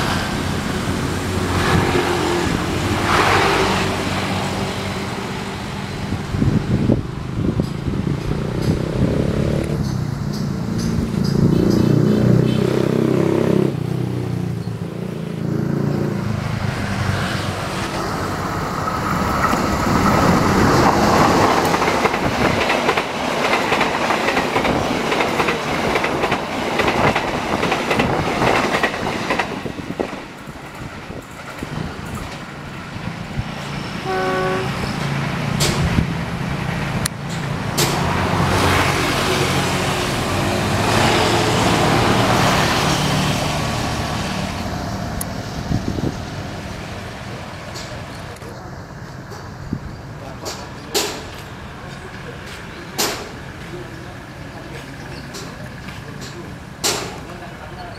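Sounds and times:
diesel locomotive drone: 0.0 - 57.9
train wheels clattering on rails: 7.5 - 12.0, 17.7 - 33.7, 35.0 - 36.2, 37.0 - 43.4, 47.6 - 54.0, 54.6 - 57.9.

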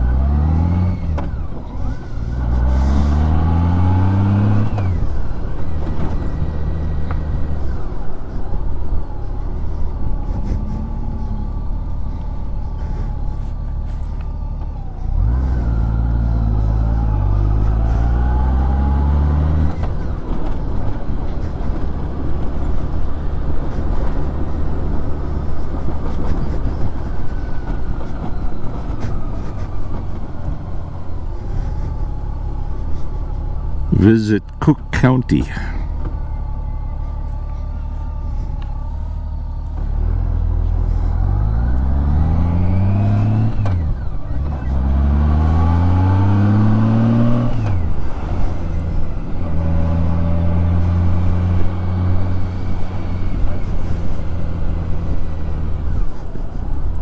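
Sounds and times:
motorcycle engine accelerating: 0.0 - 34.1, 35.8 - 57.0.

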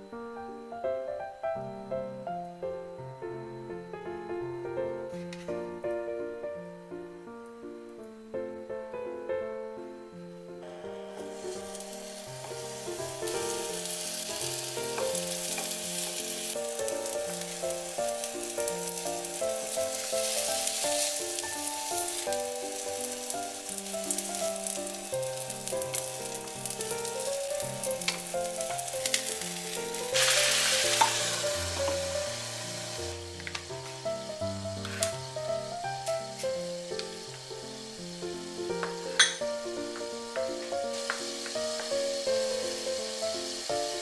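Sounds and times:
keyboard music: 0.0 - 44.0
sandwiches sizzling in a frying pan: 11.0 - 44.0.

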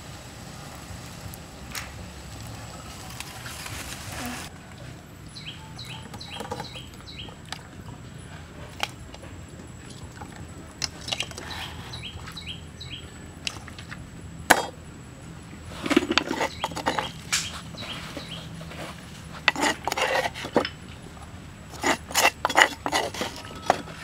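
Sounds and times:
bird chirping: 4.2 - 8.6, 11.0 - 13.5, 16.3 - 18.7.

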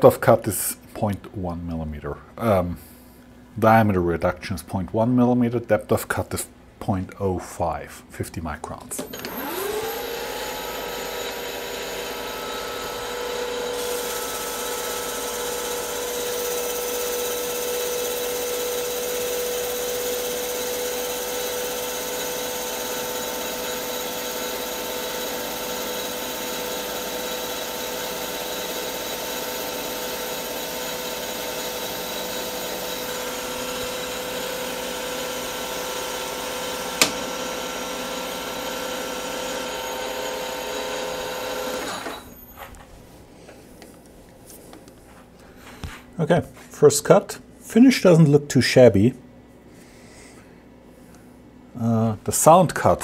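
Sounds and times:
lathe spindle whine: 9.1 - 42.6
cutting tool hiss: 9.3 - 18.9.

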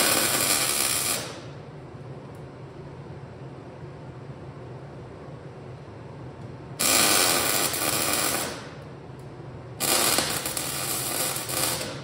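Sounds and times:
welding arc noise: 0.0 - 1.6, 6.8 - 8.8, 9.8 - 12.0.

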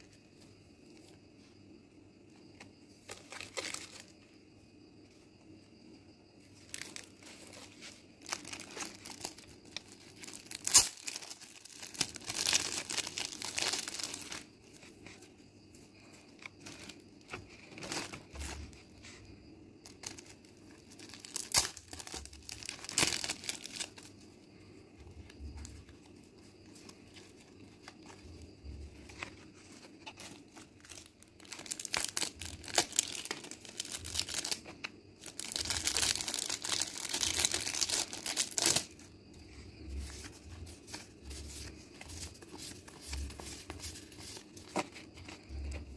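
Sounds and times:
plastic packaging crinkling: 3.1 - 4.2, 6.6 - 15.2, 19.8 - 24.2, 26.6 - 39.0, 39.8 - 45.9.

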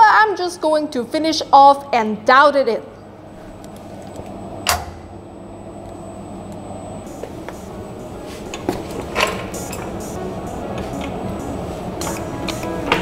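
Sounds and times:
low hum: 2.9 - 13.0.

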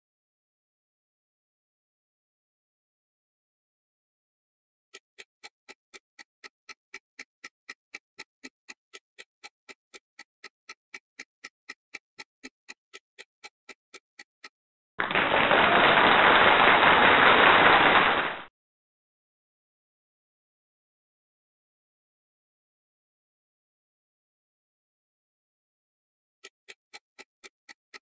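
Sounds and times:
timer ticking: 5.0 - 14.6, 26.4 - 28.0.

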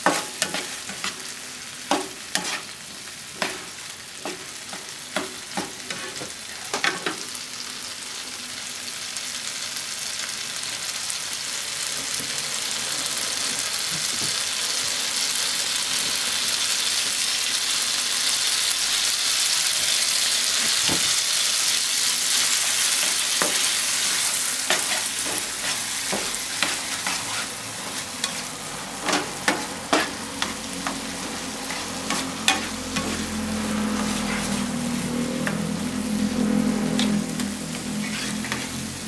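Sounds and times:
spatula scraping and tapping pan: 0.0 - 1.2, 1.9 - 7.2, 23.0 - 34.8, 37.0 - 38.8
tomatoes sizzling in butter: 0.0 - 39.0.

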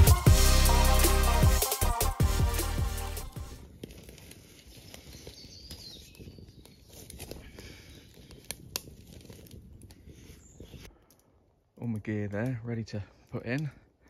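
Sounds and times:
wood fire crackling in stove: 6.6 - 13.9.

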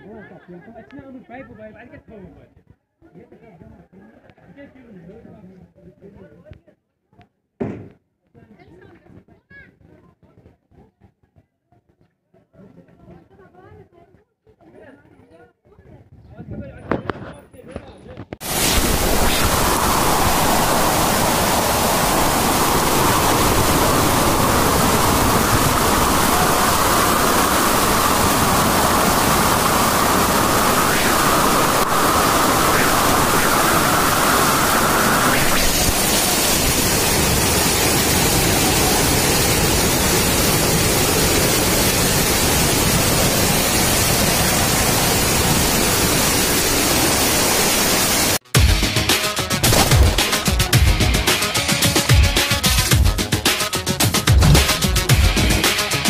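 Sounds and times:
heavy rain and rushing water: 18.4 - 48.4, 49.6 - 50.6, 54.3 - 55.5.

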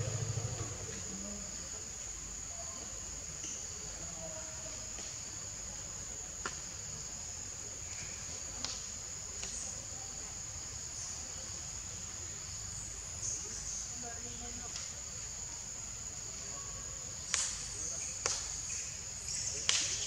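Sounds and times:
low background rumble: 0.0 - 1.6
insects droning: 0.0 - 20.0.

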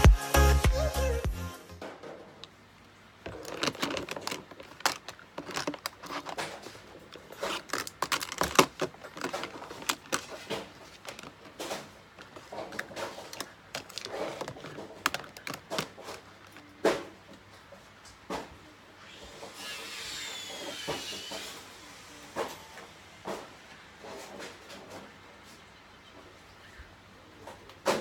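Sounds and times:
plastic compacts clicking and clattering: 3.2 - 17.0.

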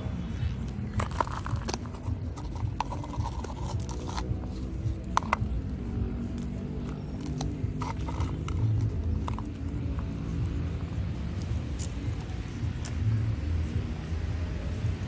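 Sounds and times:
soft background music: 0.0 - 15.0
clicks and scrapes on plastic bowl: 0.9 - 5.7, 6.4 - 10.1
cats chewing: 0.9 - 12.3.

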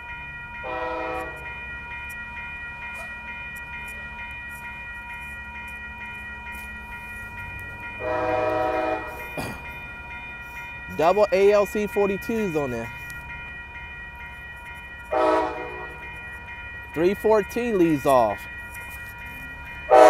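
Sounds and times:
crossing warning bell ringing: 0.0 - 20.0
train horn blasts: 0.6 - 1.4, 8.0 - 9.3, 15.1 - 16.0.

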